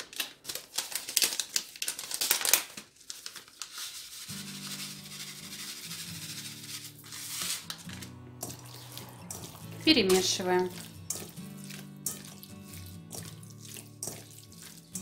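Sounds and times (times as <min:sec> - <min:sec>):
crinkling and rustling: 0:00.0 - 0:04.3, 0:06.6 - 0:08.7
seeds shaken from paper packet: 0:00.0 - 0:11.0
soft background music: 0:04.3 - 0:15.0.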